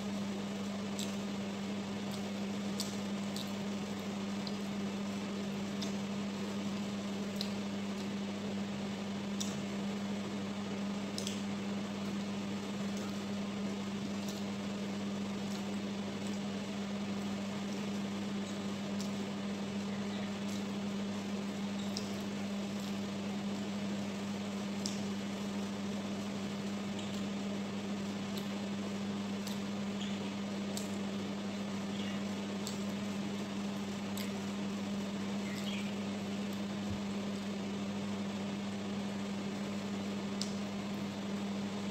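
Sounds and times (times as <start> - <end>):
low appliance hum: 0.0 - 41.9.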